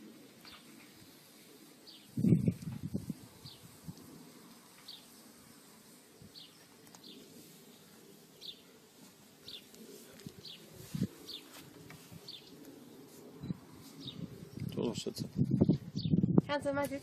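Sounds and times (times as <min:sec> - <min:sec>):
bird chirping: 0:06.2 - 0:08.8, 0:09.4 - 0:09.8, 0:12.2 - 0:16.3.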